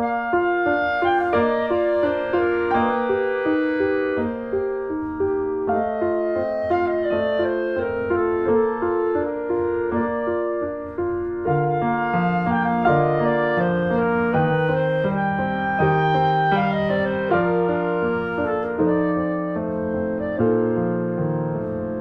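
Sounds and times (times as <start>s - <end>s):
instrumental background music: 0.0s - 22.0s.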